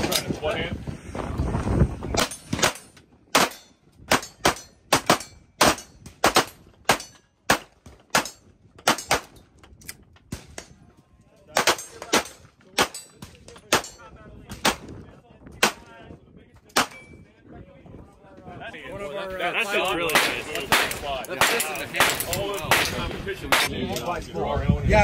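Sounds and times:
pistol shots: 20.0 - 23.7.

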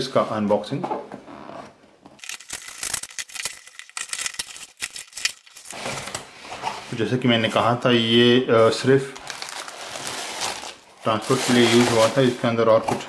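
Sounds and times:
knife slitting packing tape: 2.2 - 6.2.

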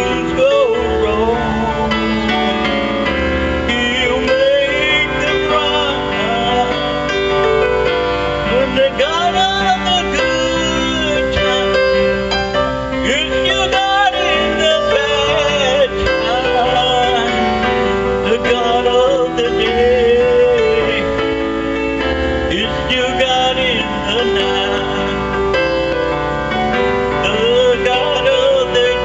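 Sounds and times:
man singing into microphone: 0.0 - 26.2, 27.1 - 29.0
instrumental backing music: 0.0 - 29.0.

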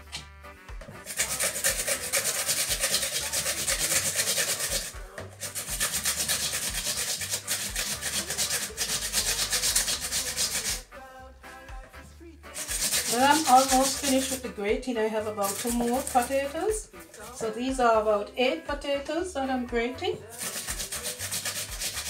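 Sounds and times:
potatoes grated on metal grater: 1.0 - 10.8, 12.5 - 17.8, 20.2 - 22.0.

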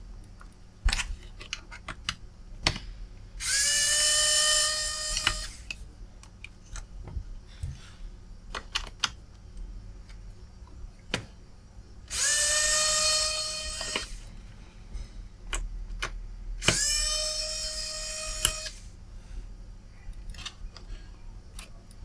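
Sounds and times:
electric screwdriver motor whine: 3.4 - 5.6, 12.1 - 14.2, 16.6 - 18.9.

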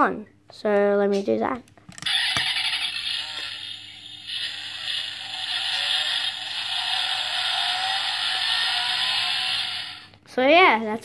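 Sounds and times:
toy speaker car engine revving: 2.0 - 10.1.

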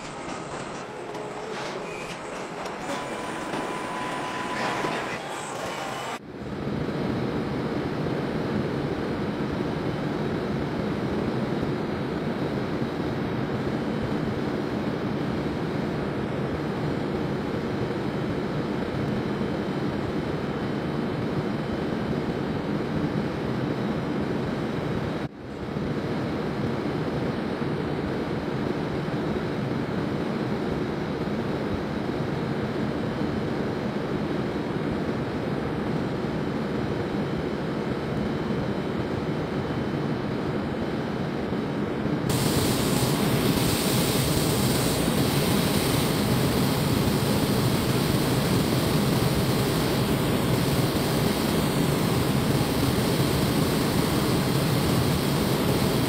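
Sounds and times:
spray painting hiss: 42.3 - 56.0
water spray and machinery: 42.3 - 56.0.

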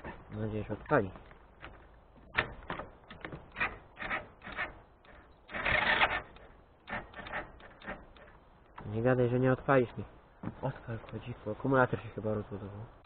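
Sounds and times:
engine starter cranking: 3.5 - 6.3.

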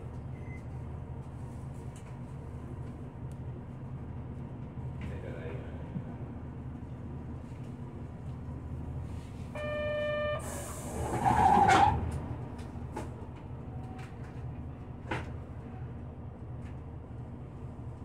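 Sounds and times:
bus engine and road rumble: 0.0 - 18.0
short electronic beep: 9.6 - 10.5.

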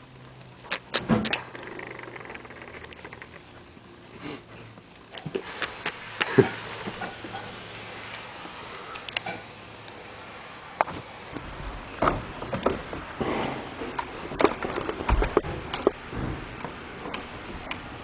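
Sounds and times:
sharp clicks and knocks: 13.9 - 17.8.

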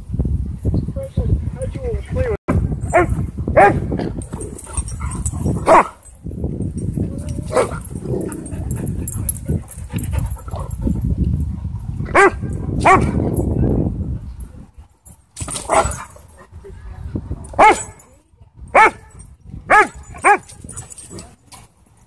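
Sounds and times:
dogs barking: 2.9 - 3.9, 4.6 - 6.1, 7.4 - 10.8, 12.1 - 13.2, 15.6 - 16.2, 17.6 - 18.0, 18.7 - 19.1, 19.7 - 21.2.

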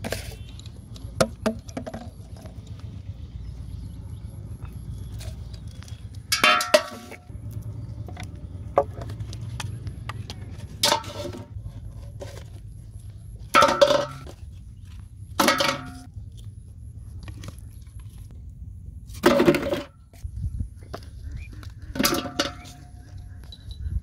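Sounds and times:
plastic bottles knocking on metal pot: 1.1 - 2.3, 6.3 - 7.2, 13.6 - 14.3, 15.4 - 16.1, 21.9 - 22.9.

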